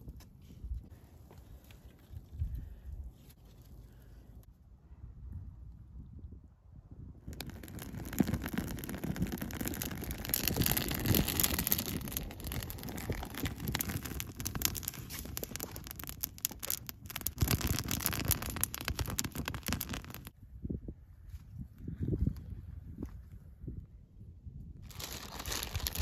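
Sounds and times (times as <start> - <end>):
wood fire crackling: 7.3 - 20.3, 24.9 - 26.0.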